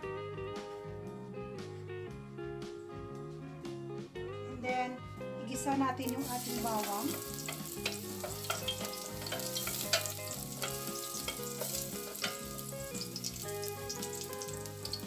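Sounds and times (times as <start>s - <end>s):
soft background music: 0.0s - 15.0s
garlic sizzling in oil: 6.0s - 15.0s
spatula tapping pot: 6.5s - 15.0s.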